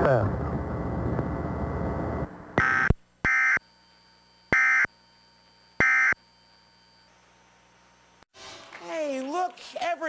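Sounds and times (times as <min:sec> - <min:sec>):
harsh two-tone data screeches: 0:02.6 - 0:03.8, 0:04.5 - 0:05.0, 0:05.8 - 0:06.3.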